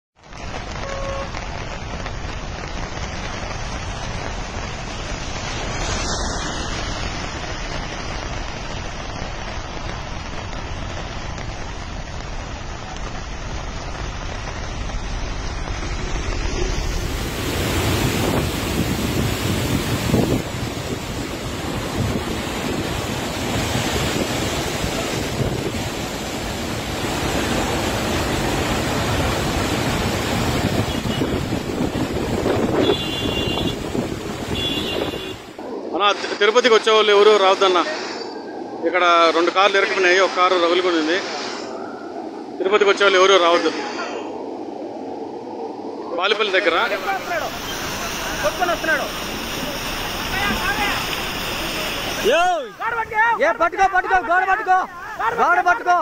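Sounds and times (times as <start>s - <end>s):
floodwater torrent rushing: 0.2s - 56.0s
heavy rain: 0.2s - 56.0s
wind on microphone: 13.9s - 36.1s, 41.3s - 52.2s.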